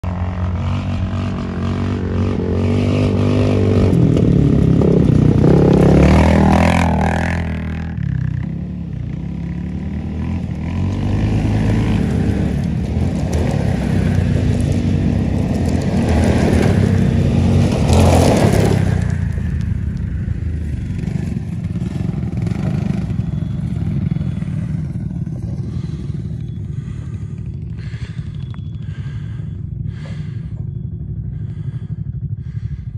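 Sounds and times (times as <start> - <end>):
quad bike engines passing: 0.0 - 32.9.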